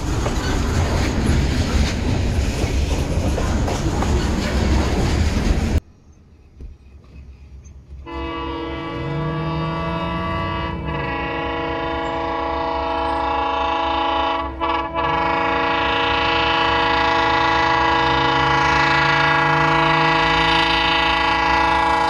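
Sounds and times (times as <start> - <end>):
locomotive air horn blasts: 8.0 - 22.0.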